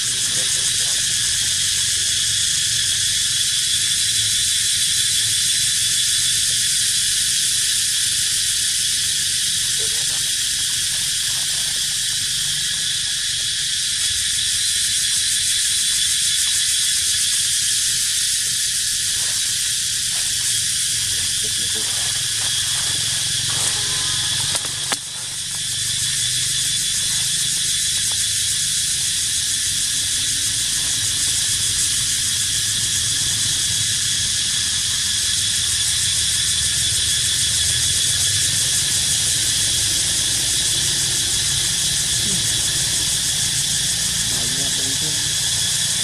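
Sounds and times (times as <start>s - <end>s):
insect buzzing chorus: 0.0s - 46.0s.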